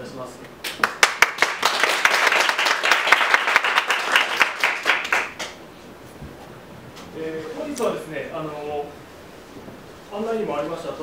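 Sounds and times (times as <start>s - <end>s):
audience applauding: 0.7s - 5.6s.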